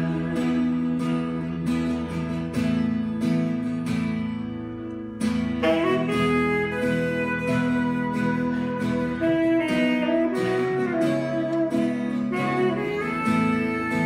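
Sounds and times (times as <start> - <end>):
strummed guitar: 0.0 - 14.0
saxophone phrase: 5.3 - 14.0.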